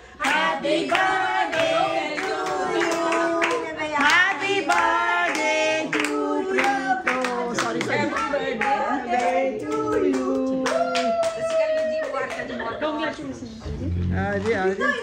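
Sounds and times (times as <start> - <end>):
group singing: 0.0 - 10.8
people clapping hands: 0.2 - 12.8.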